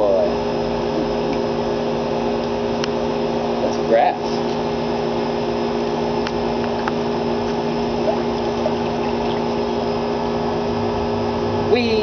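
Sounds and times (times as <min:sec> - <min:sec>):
electric motor humming: 0:00.1 - 0:12.0
water splashing: 0:08.0 - 0:09.9.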